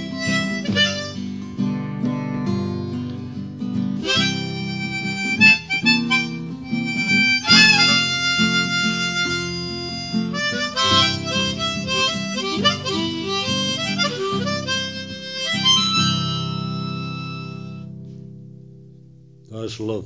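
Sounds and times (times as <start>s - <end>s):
harmonica: 0.0s - 18.3s
strummed acoustic guitar chords: 0.0s - 19.4s.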